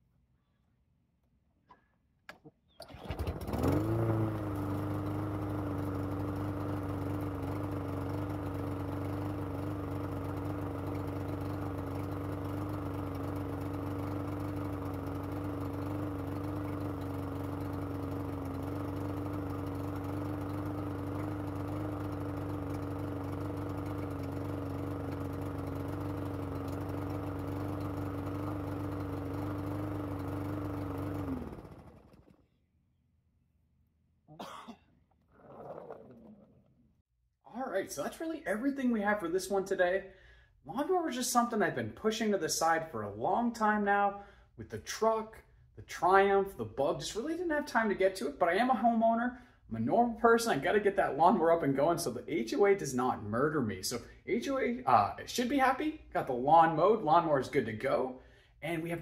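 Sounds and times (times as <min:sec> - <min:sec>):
lawn mower engine starting and running: 0:02.4 - 0:32.6.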